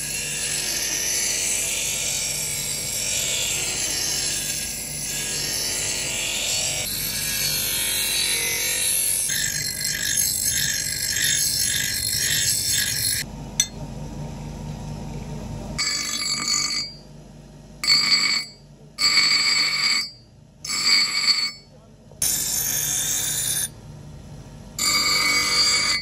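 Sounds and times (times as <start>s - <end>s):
steel grinding on bench grinder: 0.0s - 13.7s, 15.8s - 17.0s, 17.8s - 21.6s, 22.2s - 23.8s, 24.8s - 26.0s
choppy grinding bursts with ringing: 4.4s - 13.3s, 15.8s - 17.0s, 17.8s - 21.6s, 24.8s - 26.0s.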